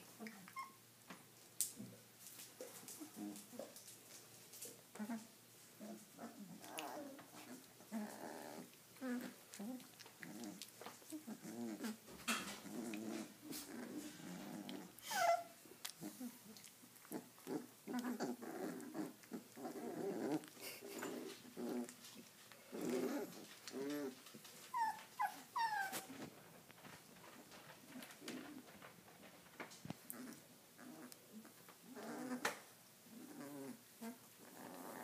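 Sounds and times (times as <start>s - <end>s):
puppies growling and grunting: 2.7s - 3.8s, 4.6s - 26.3s, 29.9s - 35.0s
puppy yelps: 15.0s - 15.6s, 24.7s - 26.1s.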